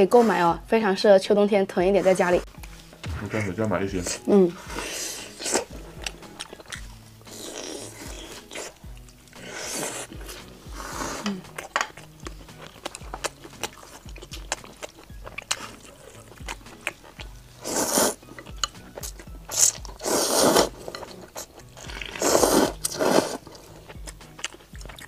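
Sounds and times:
soft music with steady beat: 1.8s - 25.0s
noodles slurped: 4.6s - 24.9s
chewing clicks: 23.8s - 25.0s.

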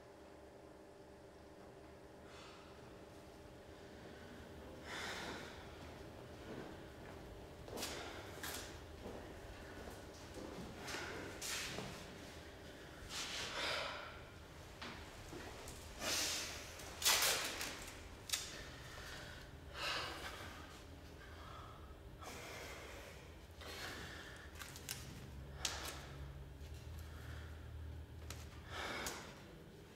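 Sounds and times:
person breathing out heavily: 3.8s - 5.9s, 12.7s - 14.4s, 15.9s - 16.8s, 18.4s - 24.7s.

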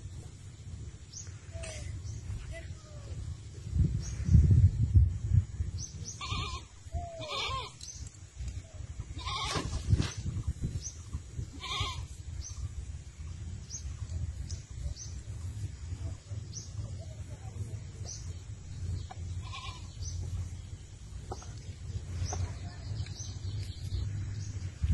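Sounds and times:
low rumble: 0.0s - 24.9s
goats bleating: 6.2s - 7.8s, 9.2s - 9.6s, 11.6s - 12.1s, 19.4s - 19.9s.

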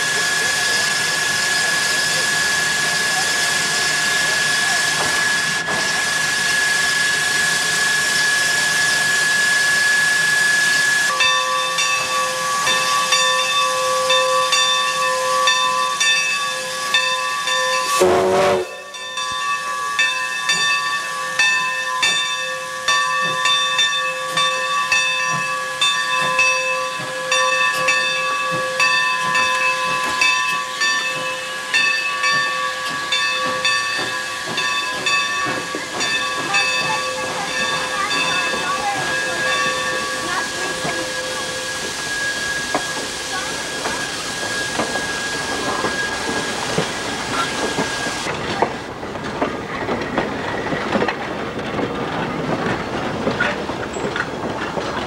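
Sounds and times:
steam hissing with whistling tone: 0.0s - 48.4s.

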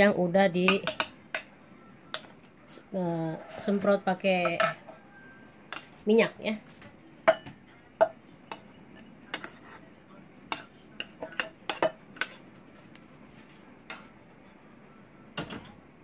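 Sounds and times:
metal utensil scraping saucepan: 3.1s - 5.0s, 8.5s - 9.8s.

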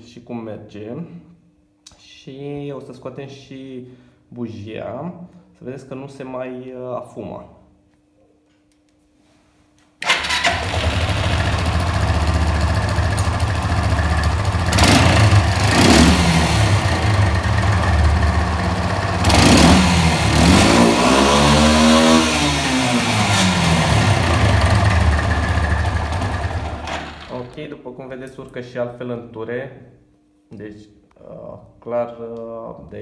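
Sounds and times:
engine starting and revving: 10.0s - 27.5s.

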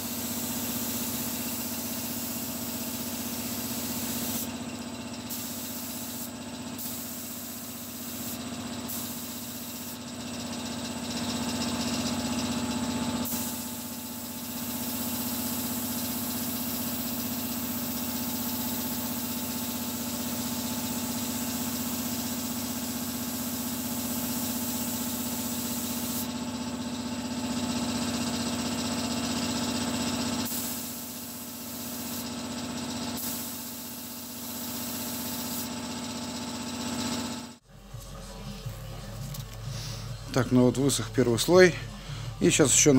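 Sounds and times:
spray gun hissing: 0.0s - 26.4s, 29.3s - 36.6s
steady mechanical hum: 0.0s - 36.8s, 37.4s - 42.9s.

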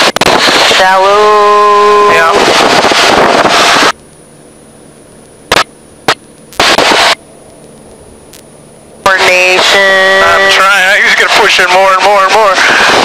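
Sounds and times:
aircraft engine and cabin noise: 0.0s - 13.0s
faint hiss with high whine: 0.0s - 13.0s.

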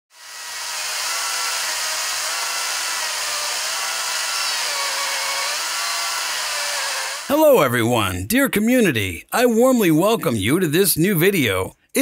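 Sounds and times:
electric chainsaw cutting log: 0.1s - 7.3s.

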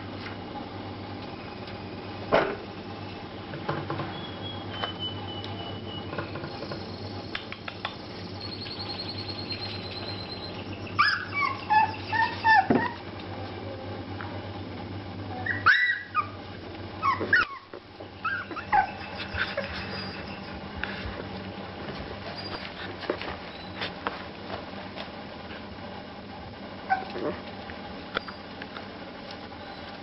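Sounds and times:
puppies yipping and whining: 4.1s - 7.0s, 8.1s - 13.0s, 15.4s - 16.4s, 17.0s - 21.1s, 22.2s - 23.9s, 26.9s - 27.2s, 29.6s - 30.0s.

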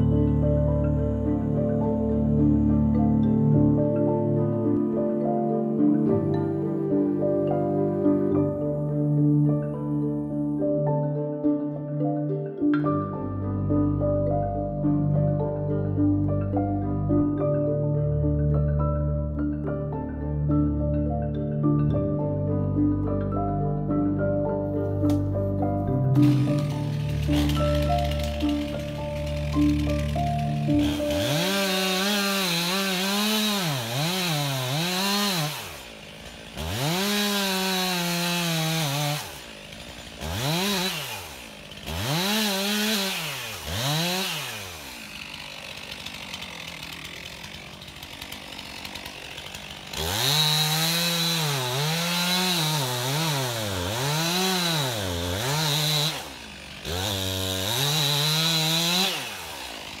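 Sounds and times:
chainsaw cutting wood: 0.0s - 10.4s, 23.0s - 60.0s
chainsaw idling: 0.0s - 10.5s, 23.0s - 60.0s.

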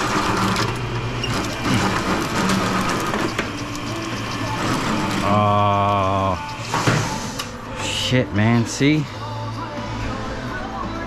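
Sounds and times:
machine clatter and clicks: 0.0s - 5.4s
motor hum: 0.0s - 11.0s.

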